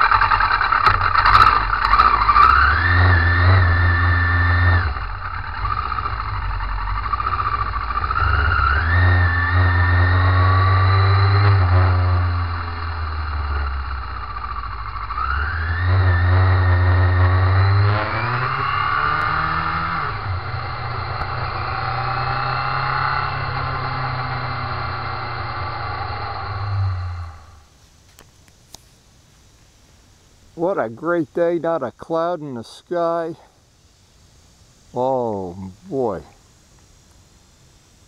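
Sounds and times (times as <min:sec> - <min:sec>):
motorcycle engine accelerating: 0:00.0 - 0:27.8.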